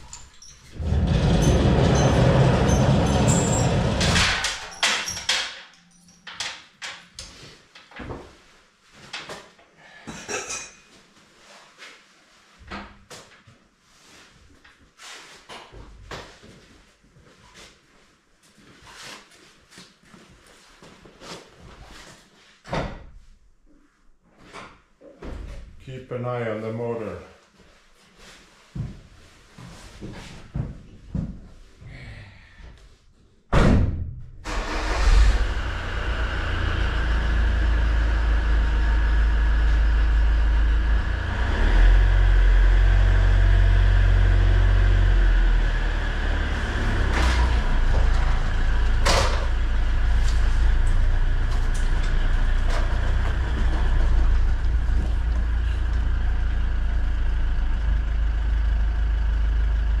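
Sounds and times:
diesel engine starting and running: 0.0 - 5.4, 34.4 - 60.0.

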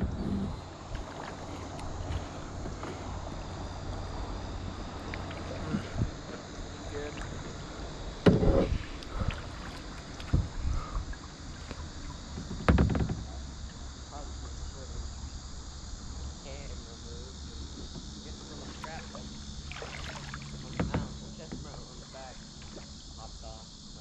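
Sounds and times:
kayak paddle splashes: 0.6 - 14.0, 17.8 - 23.4
paddle knocks on kayak: 8.2 - 8.8, 9.4 - 10.6, 12.3 - 13.4, 19.7 - 21.8.

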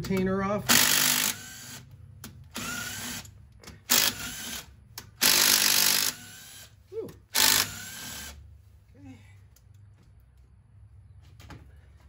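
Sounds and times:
cordless power driver bursts: 2.5 - 6.7, 7.3 - 8.4.

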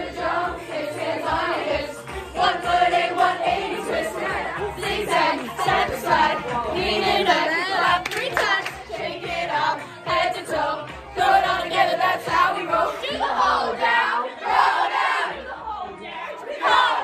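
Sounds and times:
pop music: 0.0 - 17.0
teenagers singing and shouting: 0.0 - 17.0
hand clapping: 7.9 - 8.9.

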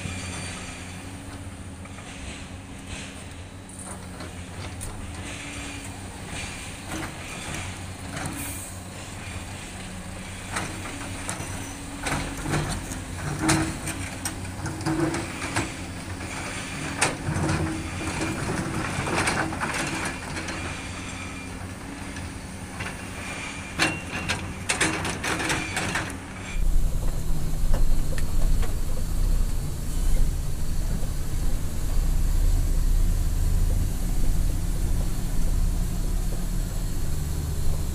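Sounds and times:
excavator diesel engine running: 0.0 - 37.9
deep vehicle engine rumble: 26.1 - 37.9.

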